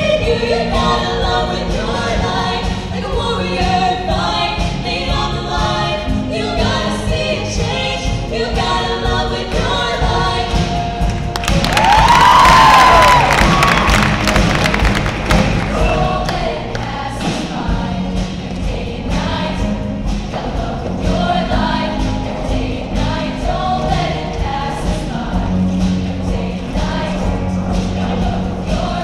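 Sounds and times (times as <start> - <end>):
women's choir singing: 0.0 - 10.8, 11.8 - 29.0
live band with steady beat: 9.6 - 29.0.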